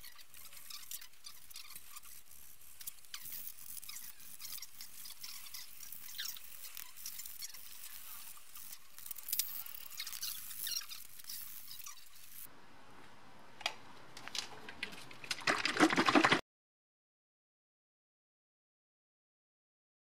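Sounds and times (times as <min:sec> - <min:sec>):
sandpaper scratching on metal: 0:00.0 - 0:12.5.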